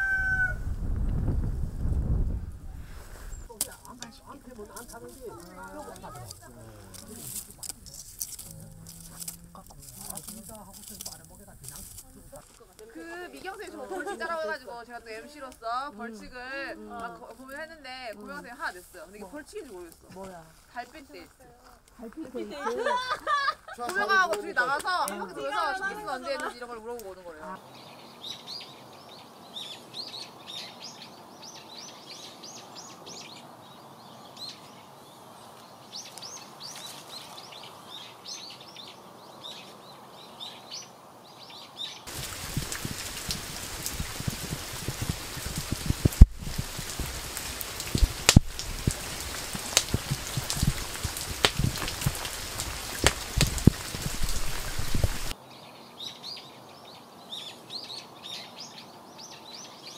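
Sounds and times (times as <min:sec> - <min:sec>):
faint steady hiss: 0:00.6 - 0:59.9
small birds chirping: 0:03.1 - 0:22.2, 0:24.6 - 0:59.9
heavy rain with drops striking: 0:42.1 - 0:55.4.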